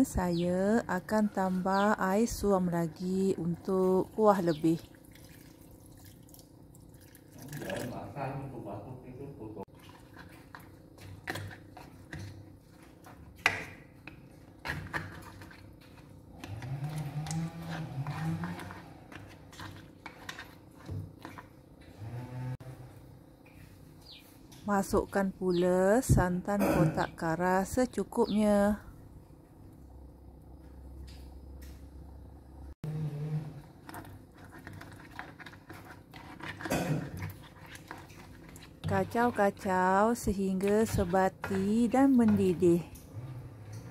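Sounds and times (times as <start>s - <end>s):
spatula scraping a wok: 14.6s - 22.8s, 32.9s - 43.9s.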